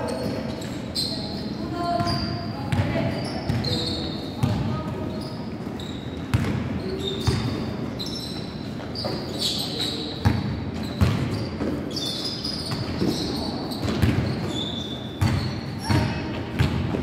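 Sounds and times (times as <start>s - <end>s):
sneakers squeaking on court: 0.0s - 17.0s
basketball bouncing on hardwood floor: 13.8s - 14.4s, 15.2s - 17.0s.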